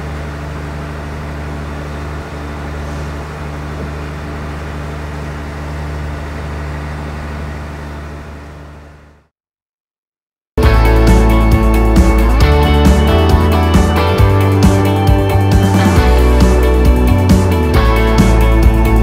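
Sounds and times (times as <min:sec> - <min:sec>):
boat engine droning: 0:00.0 - 0:09.3.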